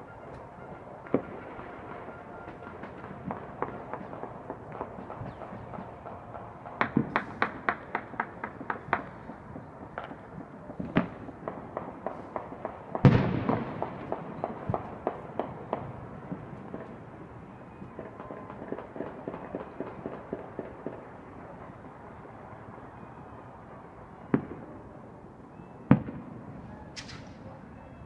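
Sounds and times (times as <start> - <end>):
fireworks bangs: 0.0 - 22.4
gunfire echoing off buildings: 0.0 - 22.5, 23.8 - 27.9
deep boom with rolling echo: 12.9 - 16.8.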